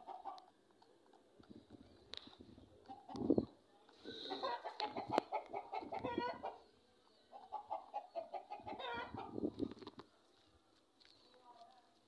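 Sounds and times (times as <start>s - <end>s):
hen clucking: 0.0s - 0.5s, 2.6s - 6.7s, 7.3s - 9.8s.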